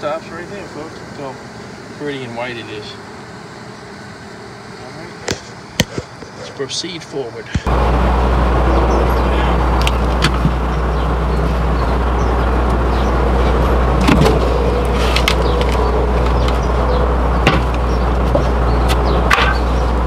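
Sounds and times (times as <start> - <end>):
steady low rumble: 7.6 - 20.0
sharp wood knocks: 17.4 - 19.7.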